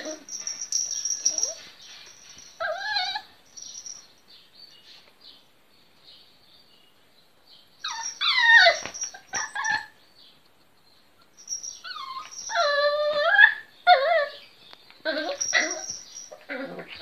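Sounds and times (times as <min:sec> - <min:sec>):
puppy yelping: 0:07.8 - 0:10.0, 0:11.8 - 0:14.4, 0:15.0 - 0:17.0.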